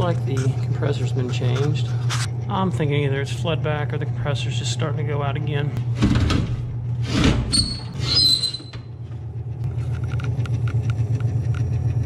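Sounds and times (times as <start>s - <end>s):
freezer compressor humming: 0.0s - 12.0s
metal panel scraping and squeaking: 7.0s - 8.9s.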